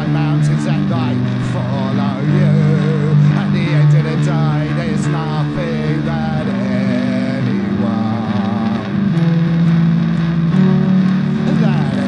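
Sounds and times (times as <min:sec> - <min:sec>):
held low notes: 0:00.0 - 0:12.0.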